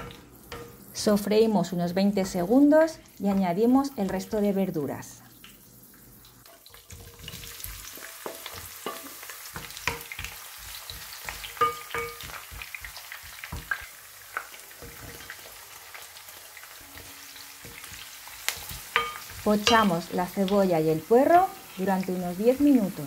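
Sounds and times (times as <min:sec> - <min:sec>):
vegetables sizzling in oil: 0:00.0 - 0:23.0
wooden spoon knocking: 0:10.9 - 0:12.6.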